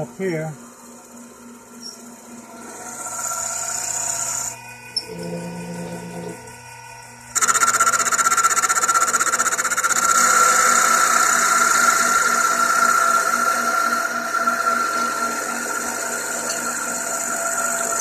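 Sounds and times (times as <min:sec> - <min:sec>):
lathe spindle humming: 0:00.0 - 0:18.0
high-pitched cutting screech: 0:02.6 - 0:06.3, 0:07.4 - 0:18.0.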